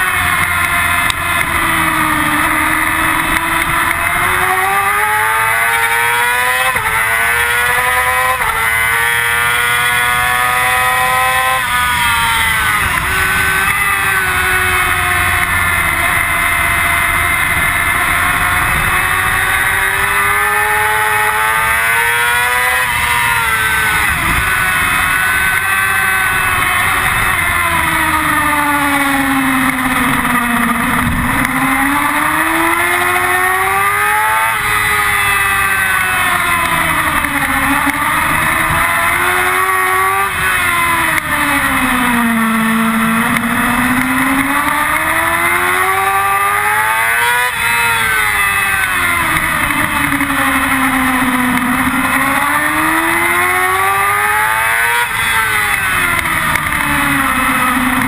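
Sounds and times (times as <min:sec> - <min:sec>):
motorcycle engine at high revs: 0:00.0 - 0:58.0
wind noise: 0:22.8 - 0:32.6.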